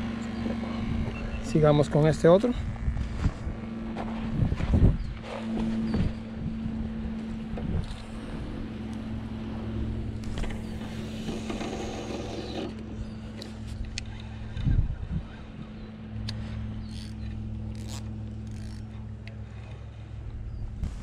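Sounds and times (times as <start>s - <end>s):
steady low hum: 0.0s - 21.0s
wind on microphone: 2.4s - 8.8s, 10.0s - 16.7s, 20.4s - 21.0s
fishing rod casting: 10.2s - 14.6s, 16.2s - 19.9s.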